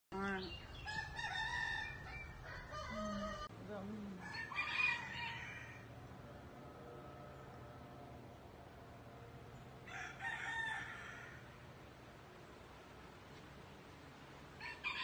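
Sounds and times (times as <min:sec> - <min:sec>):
roosters crowing: 0:00.7 - 0:03.5, 0:04.2 - 0:07.4, 0:09.8 - 0:11.8, 0:14.5 - 0:15.0.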